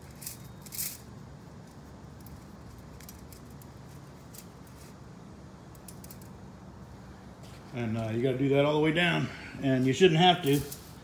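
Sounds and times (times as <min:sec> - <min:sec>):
fence wire clinking and scraping: 0:00.0 - 0:05.0, 0:09.9 - 0:11.0.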